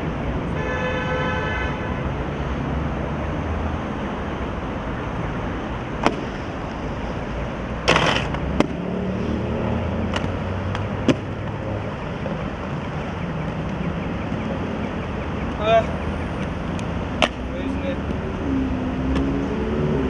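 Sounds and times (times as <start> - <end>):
city traffic rumble: 0.0 - 20.0
inline skates clacking on ground: 7.8 - 8.8.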